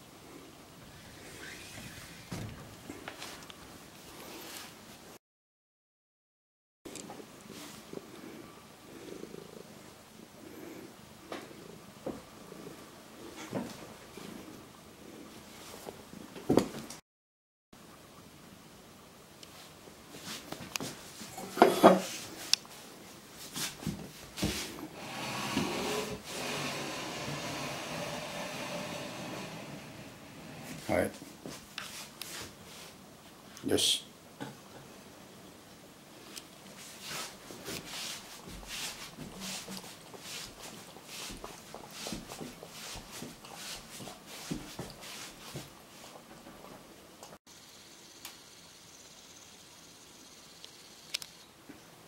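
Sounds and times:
steady hiss: 0.0s - 4.9s, 18.7s - 34.1s.

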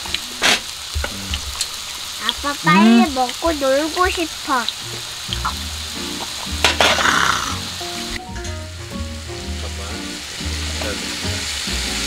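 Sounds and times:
beef sizzling: 0.0s - 12.0s
background music with bass line: 4.8s - 12.0s.

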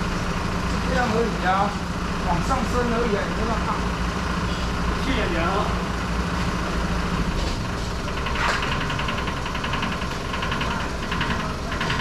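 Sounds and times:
vehicle engine idling: 0.0s - 12.0s
rapid rattling tick: 7.8s - 12.0s.

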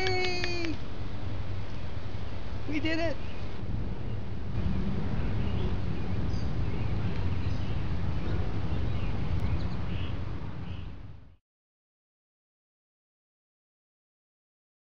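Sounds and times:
wind rumbling on microphone: 0.0s - 11.4s
birds chirping: 1.6s - 11.3s.

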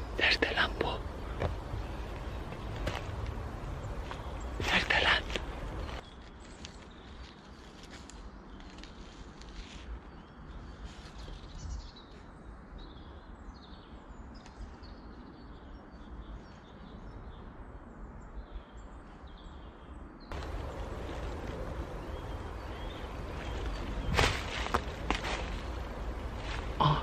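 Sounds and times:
low outdoor rumble: 0.0s - 6.1s, 20.3s - 27.0s
small birds chirping: 0.0s - 27.0s.

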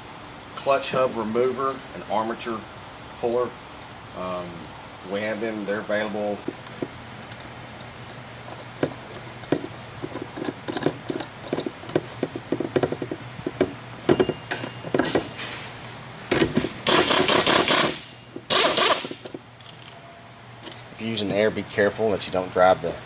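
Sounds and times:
small metallic clicks and clinks: 3.7s - 4.9s, 6.6s - 12.2s, 18.9s - 20.0s, 20.6s - 20.9s
air ratchet bursts: 16.3s - 19.3s.

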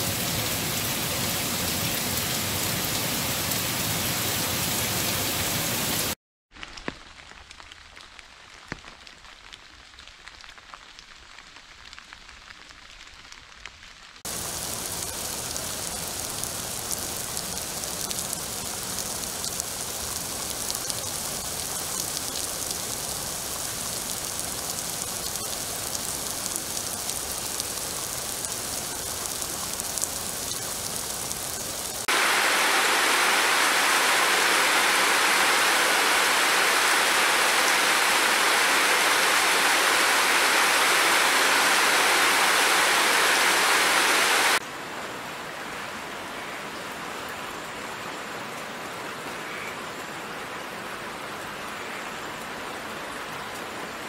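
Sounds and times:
rainfall hissing: 0.0s - 45.0s
sharp raindrop ticks: 6.6s - 32.3s.

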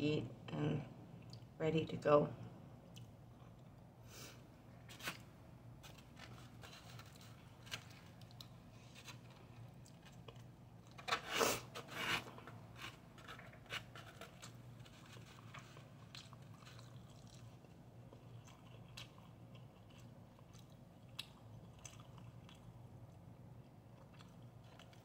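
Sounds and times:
soft chewing: 1.0s - 1.6s, 2.8s - 11.1s, 12.3s - 25.0s
plastic spoon scraping styrofoam box: 11.0s - 15.3s.

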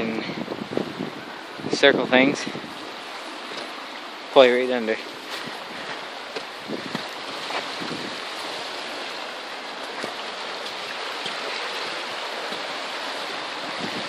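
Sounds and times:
river current rushing: 0.0s - 14.0s.

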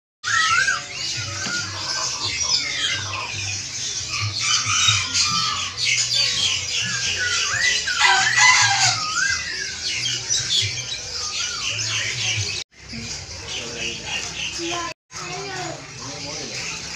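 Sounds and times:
whistled bird calls: 0.2s - 12.6s
caged birds chirping and squawking: 0.2s - 16.9s.

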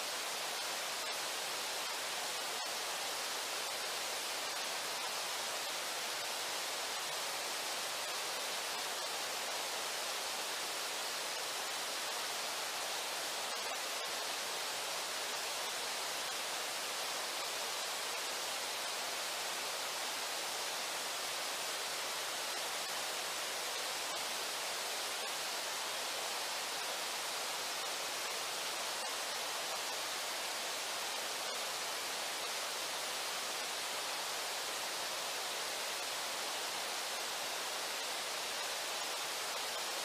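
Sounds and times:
river water flowing: 0.0s - 40.0s.

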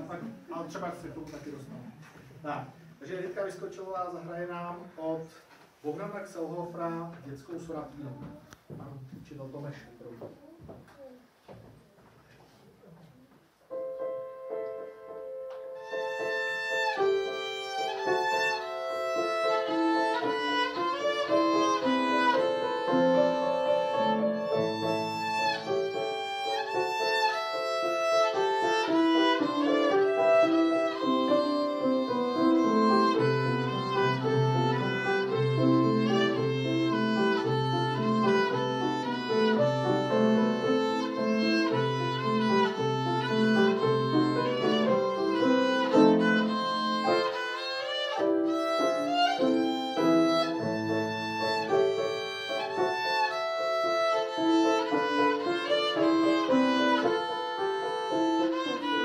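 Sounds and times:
grand piano accompaniment: 13.2s - 59.0s
violin playing classical melody: 15.6s - 59.0s.

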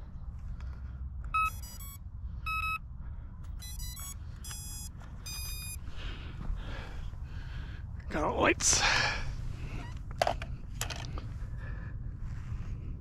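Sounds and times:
electronic beep tones: 1.3s - 2.8s, 3.6s - 5.8s
wind rumbling on microphone: 9.1s - 13.0s.

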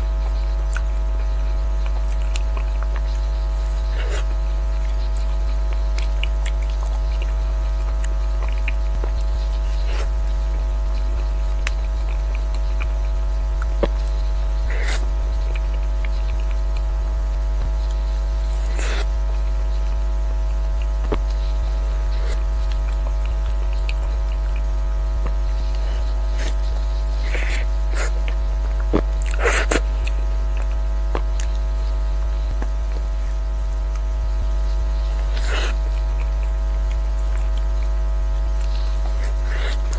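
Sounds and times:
electrical hum: 0.0s - 39.9s.

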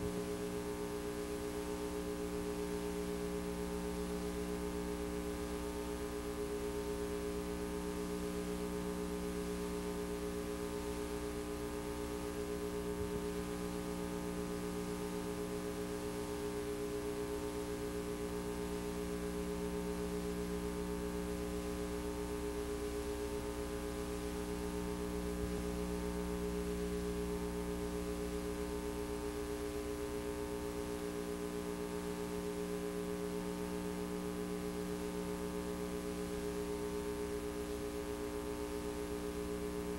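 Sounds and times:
electrical hum and buzz: 0.0s - 39.9s.

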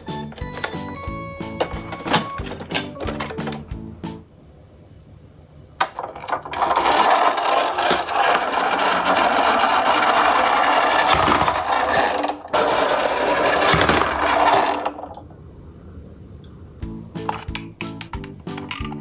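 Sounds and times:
toy truck whirring rattle: 6.2s - 15.2s.

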